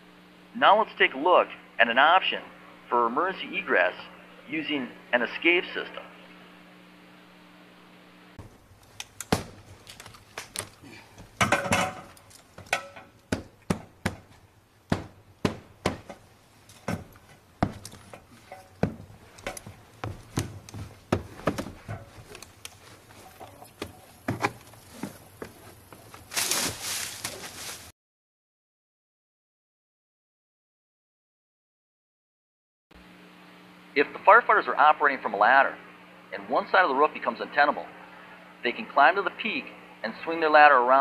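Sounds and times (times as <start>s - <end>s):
knocks and thuds on a roof: 11.2s - 16.2s, 16.8s - 18.2s, 18.8s - 22.4s.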